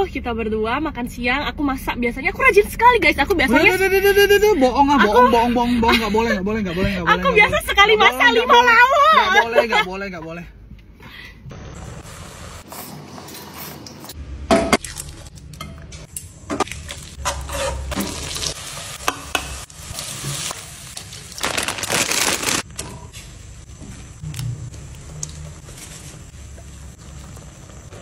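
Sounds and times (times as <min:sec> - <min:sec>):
food sizzling in pan: 0:11.5 - 0:12.9, 0:17.1 - 0:22.6
metal spoon scraping frying pan: 0:17.2 - 0:18.0.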